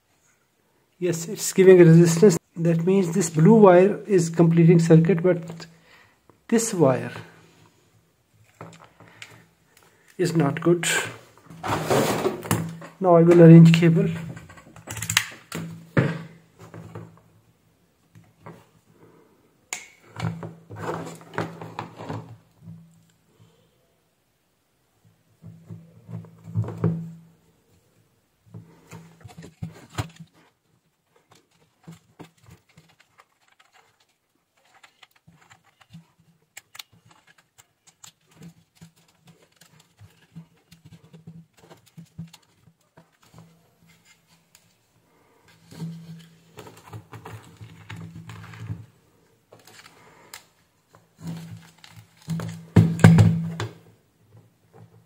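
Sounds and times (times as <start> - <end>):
hands handling plastic and cord: 8.4 - 10.4, 28.5 - 55.0.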